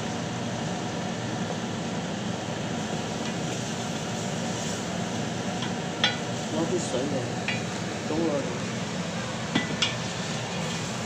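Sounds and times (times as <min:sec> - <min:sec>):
low hum and hiss: 0:00.0 - 0:11.0
sizzling in a pot: 0:00.0 - 0:11.0.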